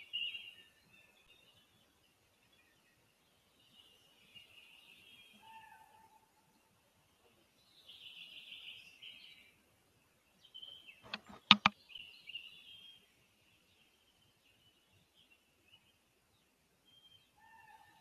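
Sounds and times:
sharp clicks: 0:11.0 - 0:11.8.

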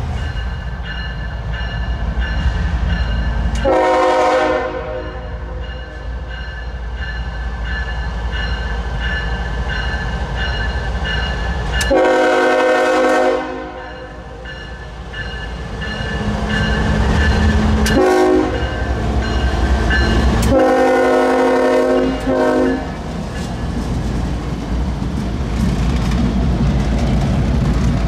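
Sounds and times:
diesel locomotive engines rumbling: 0:00.0 - 0:28.0
train horn blasts: 0:03.6 - 0:05.7, 0:11.8 - 0:14.2, 0:17.8 - 0:19.0, 0:20.4 - 0:23.0
train wheels clicking over rail joints: 0:14.4 - 0:20.7, 0:21.9 - 0:28.0.

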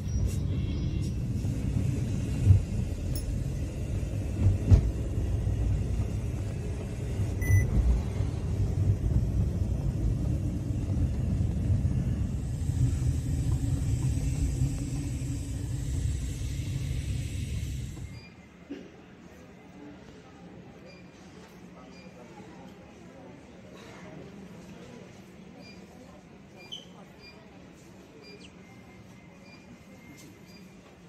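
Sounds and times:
engine and road rumble: 0:00.0 - 0:18.2.

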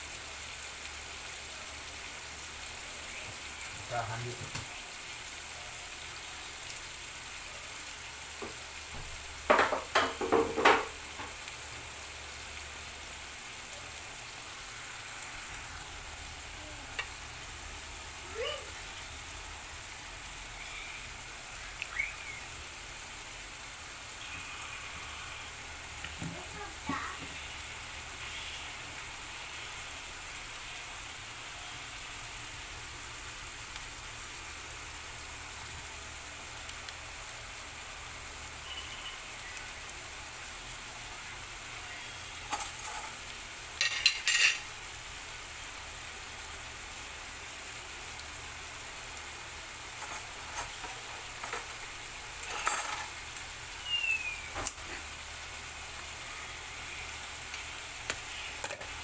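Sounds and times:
food sizzling in a pan: 0:00.0 - 0:59.0.

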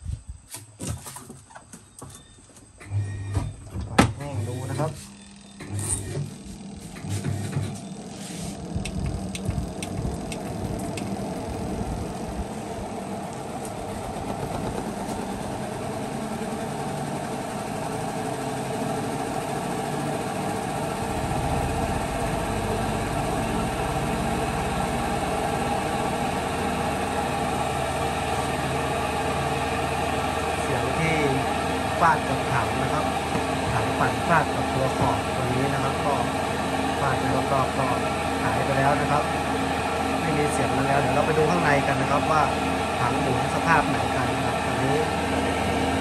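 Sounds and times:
washing machine spin tub humming: 0:01.7 - 0:46.0
sharp clicks: 0:08.7 - 0:11.1.

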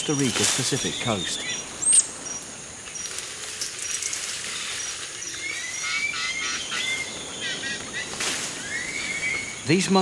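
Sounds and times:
high insect hiss: 0:00.0 - 0:10.0
chirping animal calls: 0:04.5 - 0:09.7.

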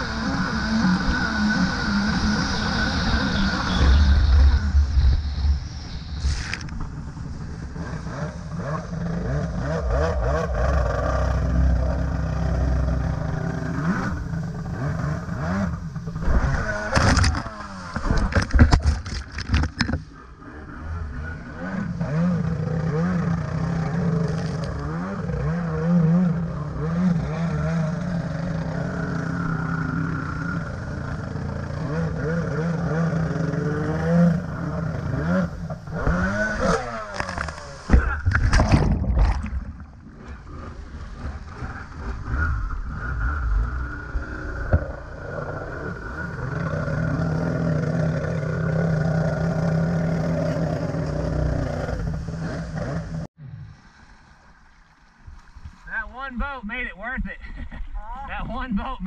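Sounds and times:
jet ski engine revving: 0:00.0 - 0:53.7
water splashing: 0:36.0 - 0:42.2
loud splashing and clattering: 0:37.1 - 0:40.0.

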